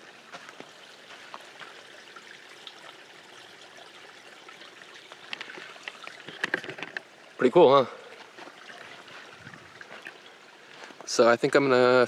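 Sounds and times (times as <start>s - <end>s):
creek trickling over rocks: 0.0s - 12.0s.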